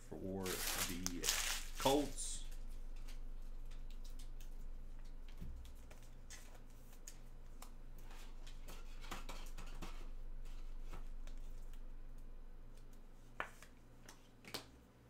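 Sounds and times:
low electrical hum: 0:00.0 - 0:15.0
packaging rustling: 0:00.4 - 0:02.2.

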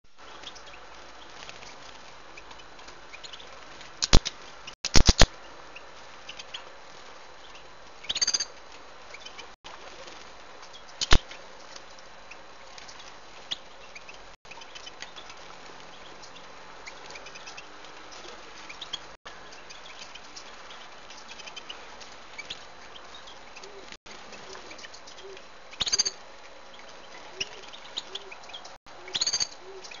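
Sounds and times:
birds fluttering wings: 0:00.1 - 0:30.0
sharp clicks: 0:04.0 - 0:05.3
high bird chirps: 0:08.0 - 0:08.5, 0:25.2 - 0:26.2, 0:27.3 - 0:30.0.

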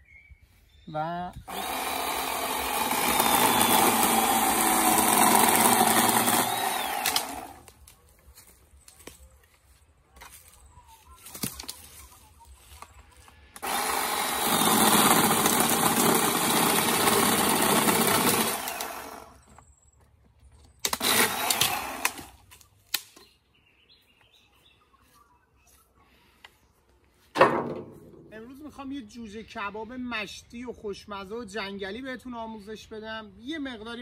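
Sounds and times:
chainsaw cutting branch: 0:01.5 - 0:07.8, 0:13.6 - 0:19.4, 0:20.8 - 0:23.1.

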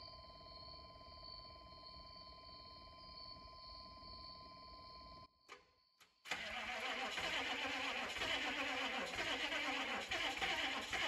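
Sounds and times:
diesel engine cranking on starter: 0:06.3 - 0:11.0.

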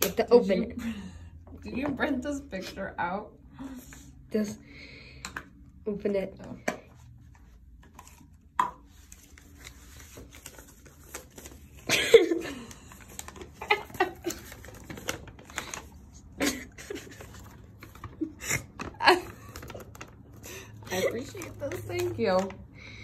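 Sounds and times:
paper crinkling: 0:08.9 - 0:22.6.

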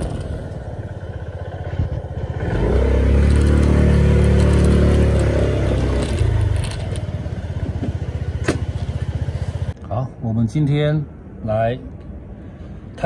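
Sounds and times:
scooter engine revving: 0:00.0 - 0:09.8.

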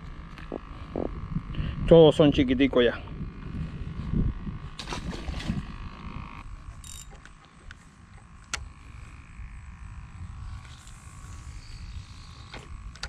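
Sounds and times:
fishing reel rustles and clicks: 0:06.4 - 0:09.4, 0:10.4 - 0:13.0.

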